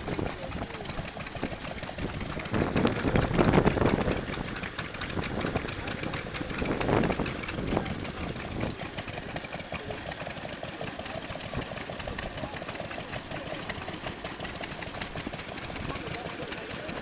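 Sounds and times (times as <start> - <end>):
stationary engines running: 0.0 - 17.0.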